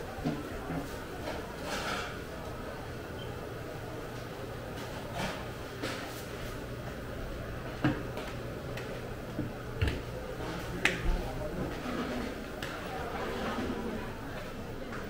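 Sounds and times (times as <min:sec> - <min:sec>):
market background hum: 0:00.0 - 0:15.0.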